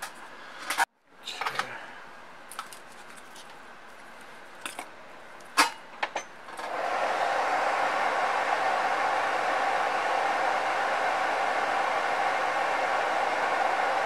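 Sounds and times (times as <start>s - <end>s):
small fan rushing: 6.6s - 14.0s.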